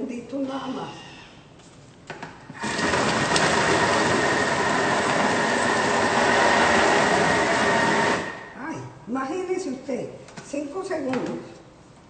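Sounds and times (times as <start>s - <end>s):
kitchen blender grinding at high speed: 2.6s - 8.6s.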